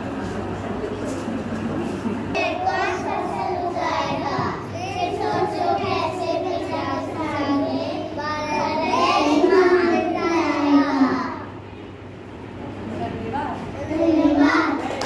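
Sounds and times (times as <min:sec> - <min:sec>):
young children singing: 0:02.4 - 0:11.7, 0:13.8 - 0:15.0.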